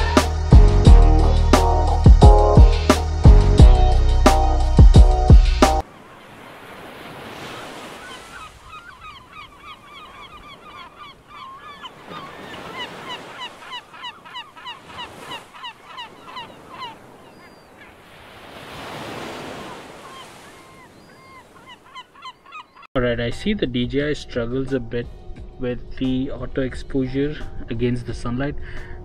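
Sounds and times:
birds chirping: 0:05.2 - 0:22.9.

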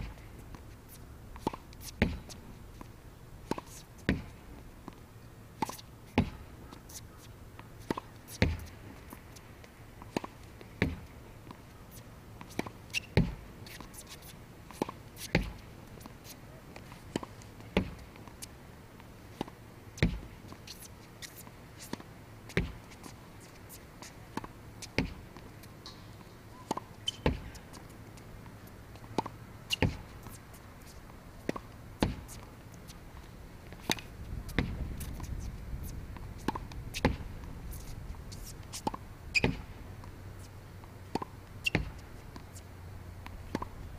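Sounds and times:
ball bouncing on hard court: 0:01.4 - 0:02.3, 0:13.1 - 0:13.4, 0:15.3 - 0:15.6, 0:20.0 - 0:20.2, 0:22.5 - 0:22.8, 0:26.6 - 0:27.7, 0:29.2 - 0:30.1, 0:38.8 - 0:39.7, 0:41.1 - 0:42.0
racket hitting tennis ball: 0:01.4 - 0:02.4, 0:05.6 - 0:06.9, 0:07.8 - 0:09.2, 0:12.4 - 0:16.2, 0:19.4 - 0:30.6, 0:31.4 - 0:32.6, 0:33.2 - 0:35.3, 0:38.7 - 0:40.1, 0:41.1 - 0:42.5, 0:43.2 - 0:43.8.

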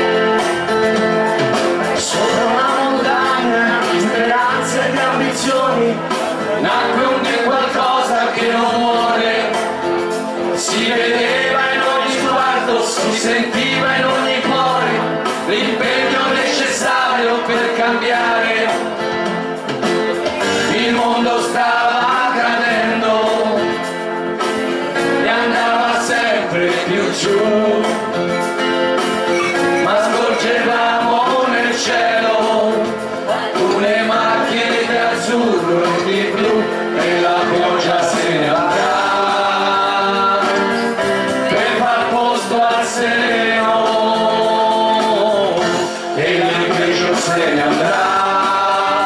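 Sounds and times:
group singing into microphones: 0:00.0 - 0:49.0
instrumental backing: 0:00.0 - 0:49.0.

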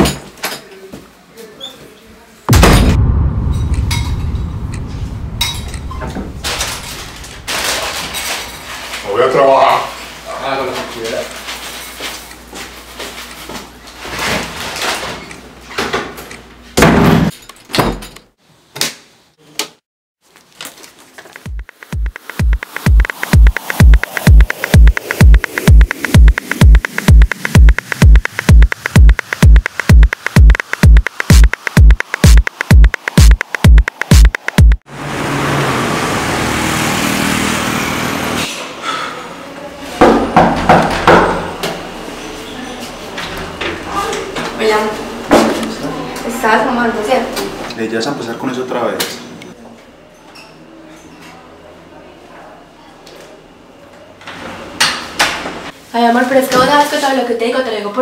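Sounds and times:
door slamming: 0:02.5 - 0:08.6
passing street traffic rush: 0:34.9 - 0:38.5.

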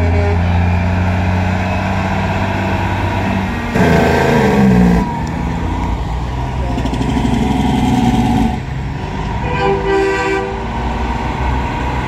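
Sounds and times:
truck horn blast: 0:00.0 - 0:00.8, 0:03.7 - 0:05.0, 0:08.4 - 0:10.8
truck diesel engines droning: 0:00.0 - 0:12.0.

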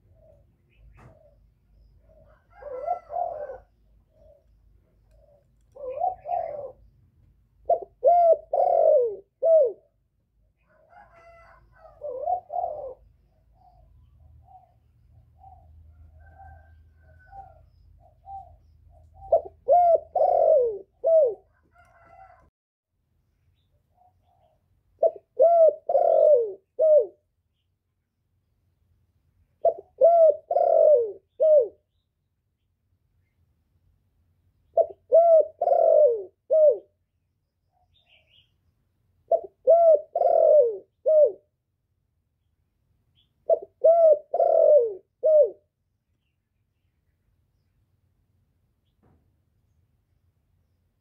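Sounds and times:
dove cooing: 0:00.0 - 0:07.0, 0:07.6 - 0:10.0, 0:10.6 - 0:22.4, 0:23.9 - 0:27.3, 0:29.6 - 0:32.0, 0:34.6 - 0:37.0, 0:39.2 - 0:41.6, 0:43.4 - 0:45.7.

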